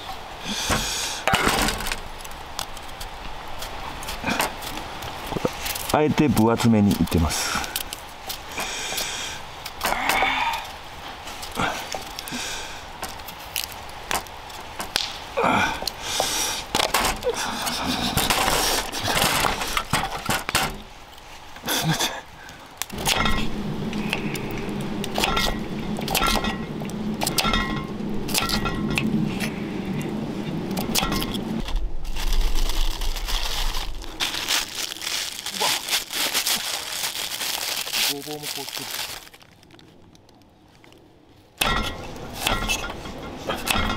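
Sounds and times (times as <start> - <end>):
low scraping noise: 22.9 - 35.4.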